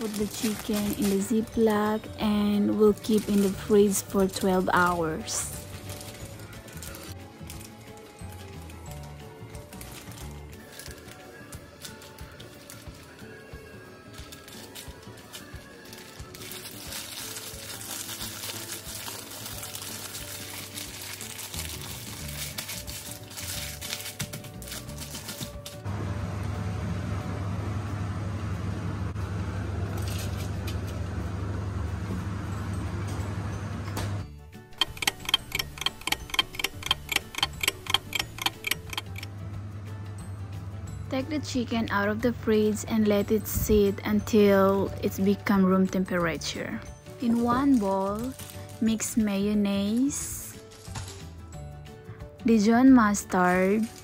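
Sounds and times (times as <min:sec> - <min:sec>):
plastic bag crinkling: 0:00.0 - 0:13.1, 0:14.1 - 0:25.8, 0:47.1 - 0:49.2, 0:53.7 - 0:54.0
background music: 0:00.0 - 0:27.9, 0:31.2 - 0:54.0
clock ticking: 0:34.8 - 0:39.3.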